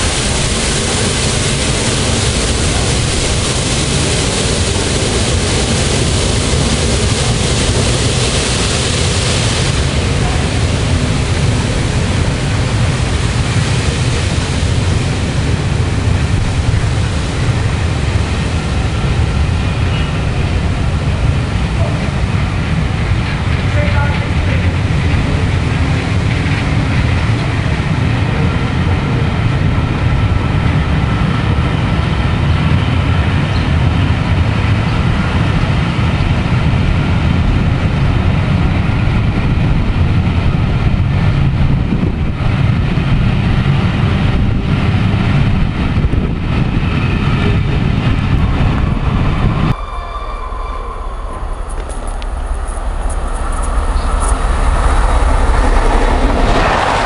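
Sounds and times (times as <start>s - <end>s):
approaching train: 0.0s - 57.0s
train wheels rumbling on rail: 0.0s - 57.0s.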